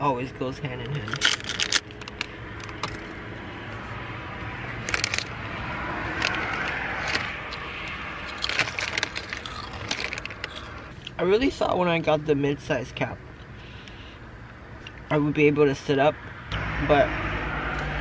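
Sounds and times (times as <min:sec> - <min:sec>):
chips crunching: 0:08.2 - 0:10.9
chip bag rustling: 0:08.3 - 0:10.8.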